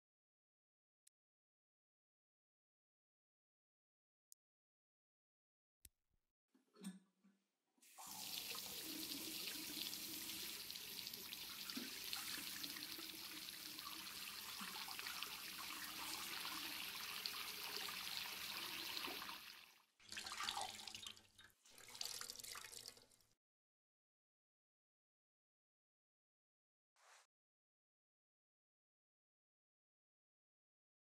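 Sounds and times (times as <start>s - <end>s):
water dripping and splashing: 7.9s - 23.2s.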